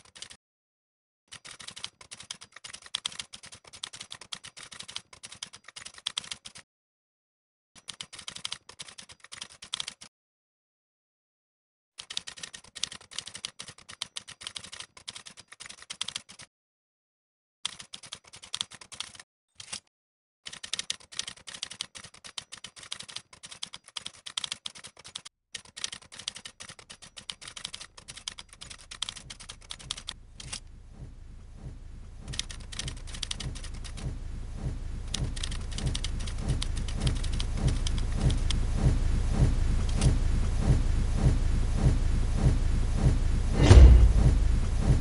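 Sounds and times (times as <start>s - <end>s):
rapid keyboard typing clicks: 0.0s - 0.4s, 1.3s - 6.6s, 7.8s - 10.1s, 12.0s - 16.5s, 17.7s - 19.8s, 20.5s - 30.6s, 32.2s - 34.2s, 35.1s - 38.6s
low rumble: 29.6s - 45.0s.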